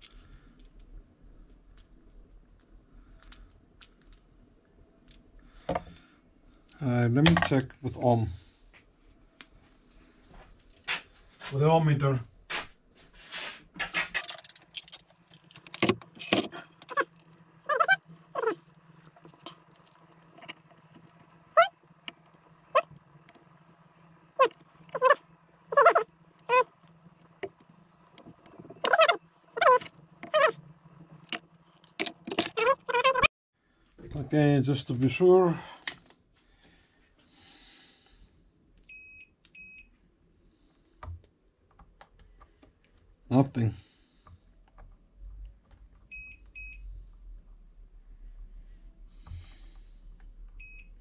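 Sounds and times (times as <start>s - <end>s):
dog whining: 16.9s - 18.6s, 21.5s - 21.8s, 24.4s - 26.7s, 28.8s - 30.6s, 32.5s - 33.3s
multimeter beeps: 38.9s - 39.9s, 50.6s - 51.0s.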